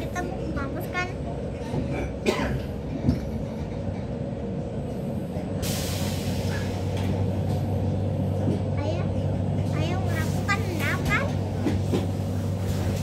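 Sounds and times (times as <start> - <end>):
train low hum: 0.0 - 13.0
train rolling rumble: 0.0 - 13.0
train clank: 1.6 - 4.2, 9.6 - 13.0
compressed air hiss: 5.6 - 6.9.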